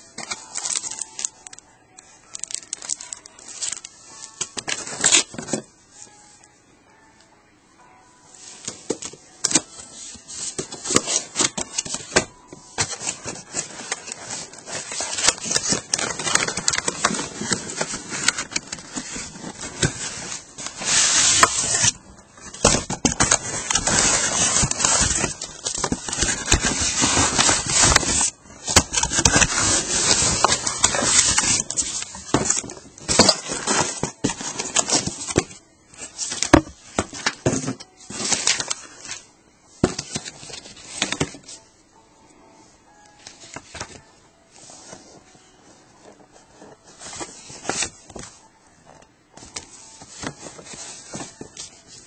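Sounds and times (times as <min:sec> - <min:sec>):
cables being handled: 0:00.0 - 0:05.7, 0:08.4 - 0:39.2, 0:46.0 - 0:52.0
packing material crinkling: 0:00.1 - 0:01.6, 0:02.2 - 0:05.4.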